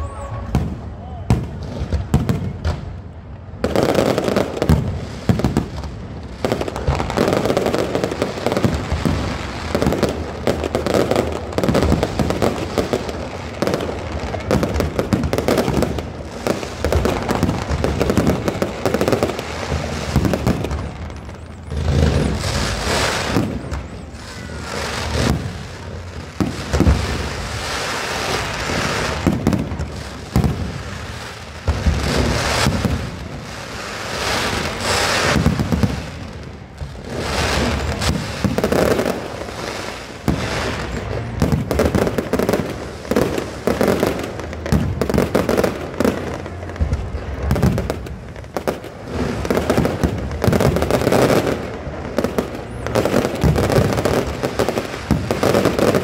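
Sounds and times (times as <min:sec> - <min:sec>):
fireworks bangs and crackle: 0:00.0 - 0:56.0.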